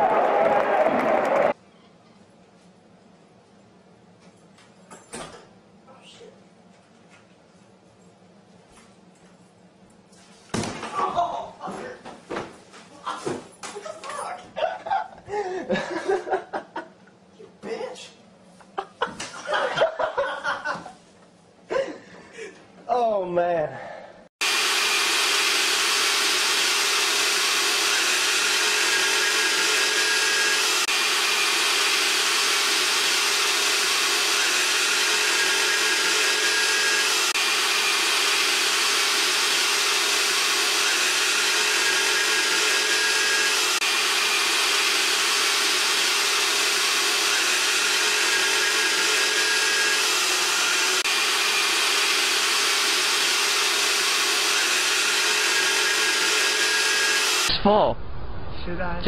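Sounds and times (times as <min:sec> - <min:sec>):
vacuum cleaner whining: 0:24.4 - 0:57.5.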